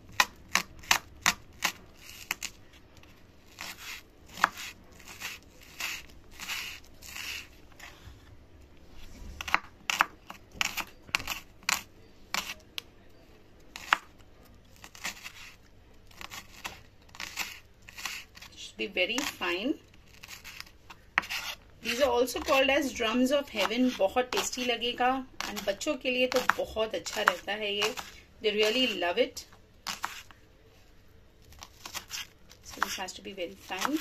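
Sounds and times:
knife chopping on wooden board: 3.6 - 7.4, 9.4 - 12.6.

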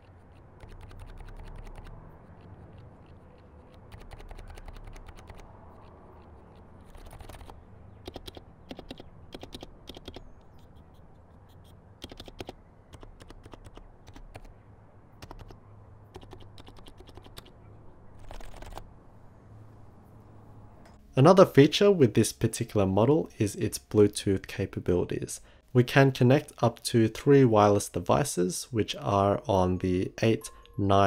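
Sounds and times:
keyboard typing: 0.0 - 14.5, 15.1 - 17.6, 18.2 - 18.9.

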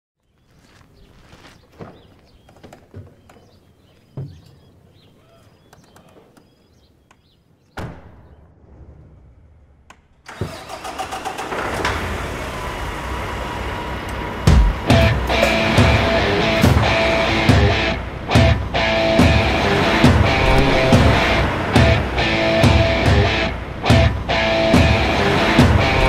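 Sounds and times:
diesel truck engine starting: 10.2 - 26.0.

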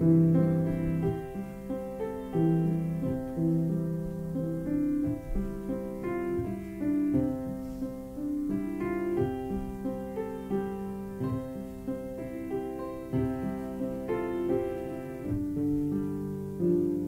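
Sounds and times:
piano playing slow chords: 0.0 - 17.0.

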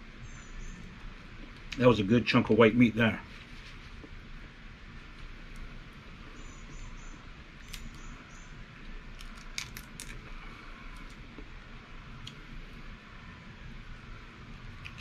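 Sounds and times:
crab shells cracking: 7.6 - 8.0, 9.1 - 10.3, 14.8 - 15.0.

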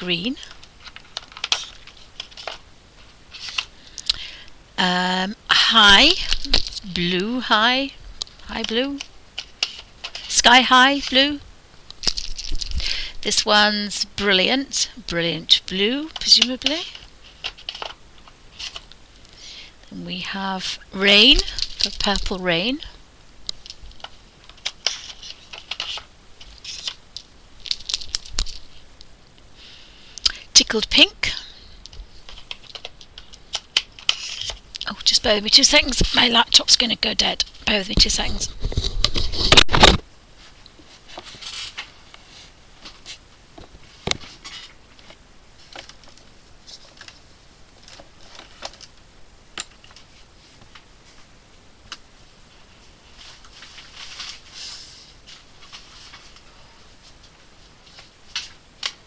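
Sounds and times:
faint handling clicks and rustles: 0.0 - 4.6, 5.7 - 59.0.

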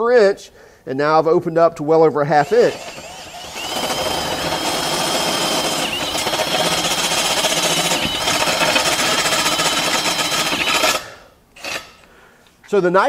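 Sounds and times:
drill motor whine: 2.4 - 11.0
bit grinding through steel: 2.4 - 11.1.

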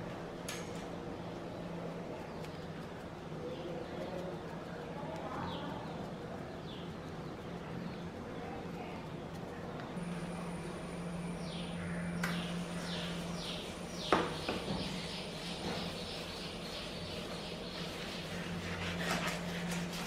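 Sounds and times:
steady low hum: 0.0 - 20.0
scrub pad scrubbing stone: 17.3 - 20.0.

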